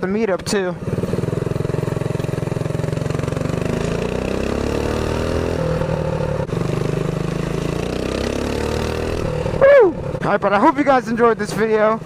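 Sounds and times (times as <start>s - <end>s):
wind and road noise: 0.0s - 12.0s
mini bike engine revving: 0.8s - 10.2s.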